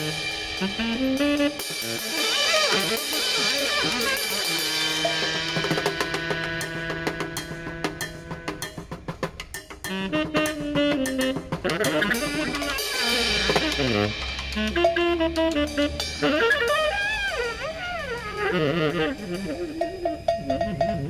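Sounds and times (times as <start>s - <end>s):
saxophone melody: 0.0s - 8.8s, 9.8s - 21.0s
snare drum beat: 9.8s - 15.7s.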